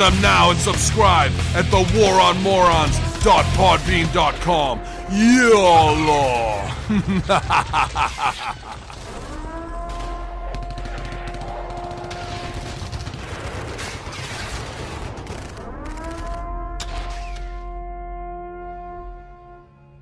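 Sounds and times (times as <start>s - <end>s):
music: 0.0s - 6.8s
machine-gun fire: 8.8s - 16.4s
held horn-like tone rising: 16.6s - 20.0s.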